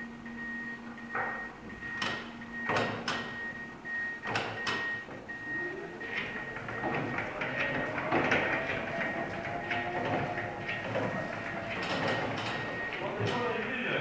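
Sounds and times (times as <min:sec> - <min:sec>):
low electric motor whine: 0:00.0 - 0:14.0
truck clicks and knocks: 0:01.1 - 0:03.4, 0:04.2 - 0:05.2, 0:06.2 - 0:13.5.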